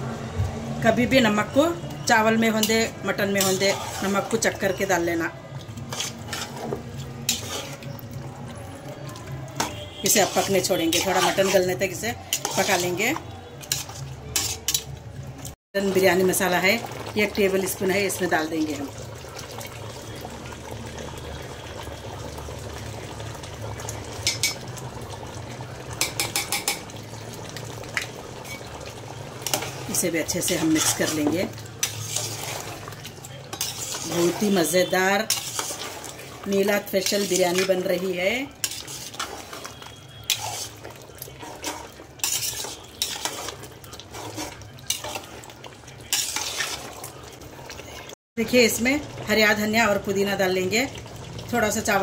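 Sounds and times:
metal spoon scraping a pot: 2.5 - 8.2, 9.5 - 15.0, 28.4 - 28.8, 29.4 - 47.0
metal spoon clinking on pot: 13.6 - 14.9, 24.2 - 24.6, 26.0 - 26.9, 42.2 - 43.4.

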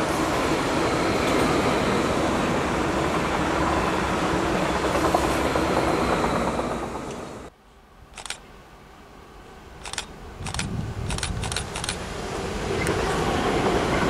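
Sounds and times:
approaching high-speed train rumble: 0.0 - 7.5, 9.5 - 14.0
train sound: 0.0 - 8.5, 9.4 - 14.0
sharp clicks: 8.2 - 8.4, 9.8 - 12.0.

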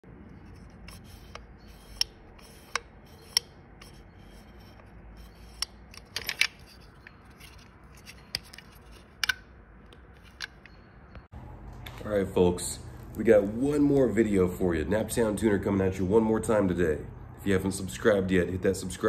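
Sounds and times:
light rubbing: 0.1 - 10.8
sharp clicks of pump parts: 0.6 - 10.8.

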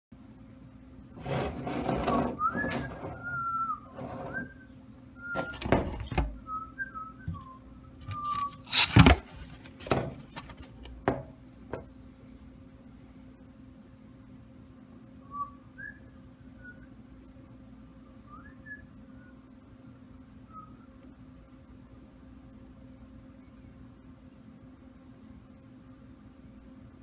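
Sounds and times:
person whistling a tune: 2.4 - 5.6
aerosol spray blast: 8.7 - 9.0.

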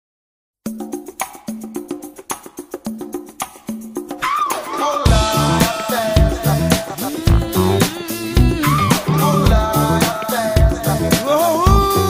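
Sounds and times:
bass and drums beat: 5.1 - 12.0
sliding lead melody: 5.2 - 11.2.

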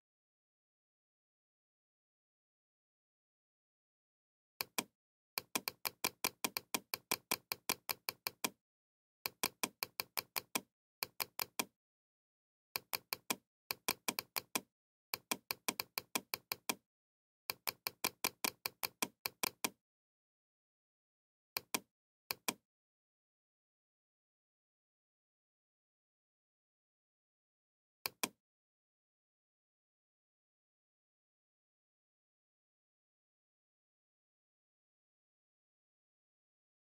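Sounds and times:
computer mouse clicking: 4.6 - 8.6, 9.3 - 11.7, 12.8 - 16.8, 17.5 - 19.8, 21.6 - 22.6, 28.1 - 28.4.

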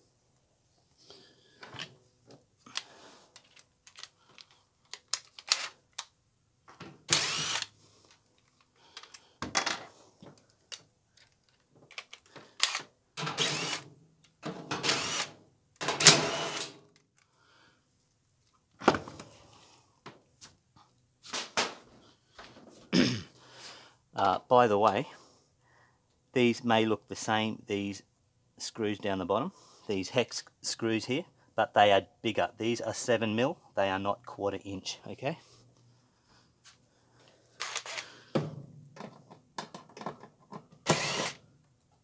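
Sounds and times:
power drill-driver bursts: 5.4 - 5.8, 7.1 - 7.8, 12.6 - 13.9, 14.8 - 15.4, 16.0 - 16.8, 37.6 - 38.1, 40.8 - 41.4
handling clicks and knocks: 38.4 - 40.8.

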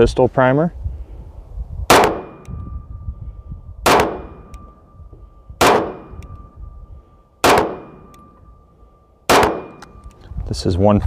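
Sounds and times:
pistol shots: 1.9 - 2.6, 3.8 - 4.8, 5.6 - 6.5, 7.4 - 8.4, 9.2 - 10.0.

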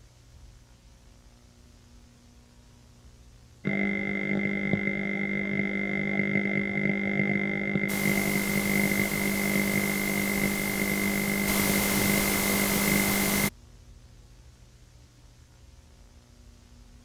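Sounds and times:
electronic hum: 3.6 - 13.5
video static hiss: 3.7 - 13.5.

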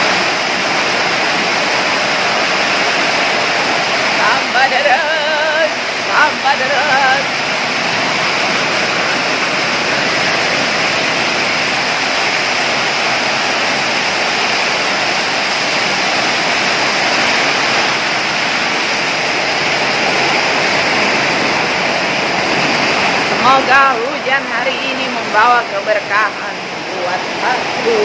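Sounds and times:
heavy rain on a metal roof: 0.0 - 28.0.

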